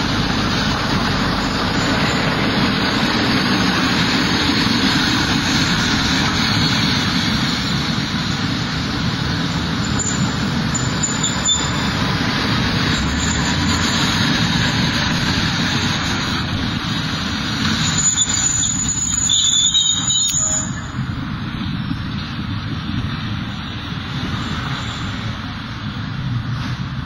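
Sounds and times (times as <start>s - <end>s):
tram rumbling past: 0.0s - 27.0s
wheels squealing on rails: 0.0s - 27.0s.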